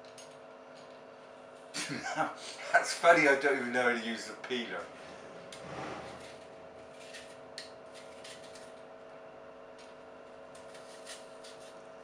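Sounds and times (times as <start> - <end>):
low hum: 0.1 - 10.8
peeler scraping apple skin: 5.5 - 8.9, 10.4 - 11.9.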